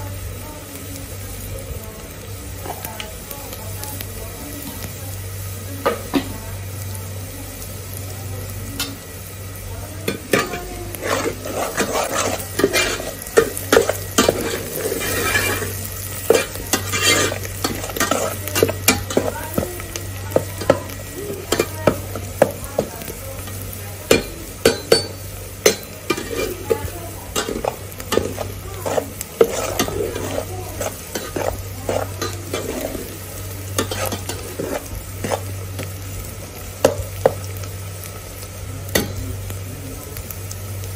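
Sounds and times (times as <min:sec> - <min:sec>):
oil sizzling: 0:00.0 - 0:40.9
metal spoon clinking and scraping pot: 0:10.0 - 0:35.9.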